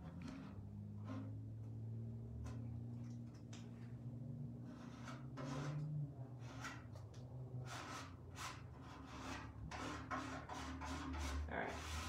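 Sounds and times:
paint applicator scraping: 4.7s - 7.0s, 7.6s - 12.0s.

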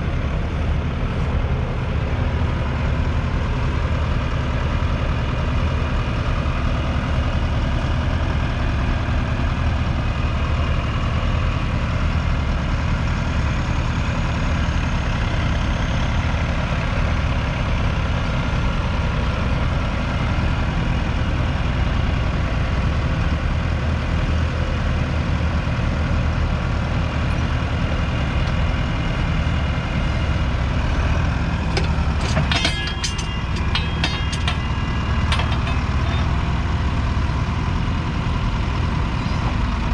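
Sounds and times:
tractor diesel engine under load: 0.0s - 39.9s
clicks and rattles: 31.7s - 36.3s.

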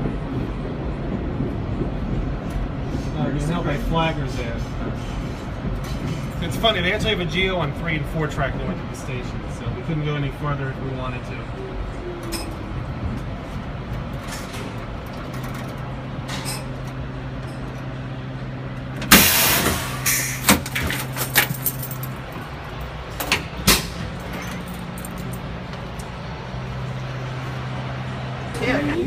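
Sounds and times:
air brake hissing: 19.0s - 20.6s.

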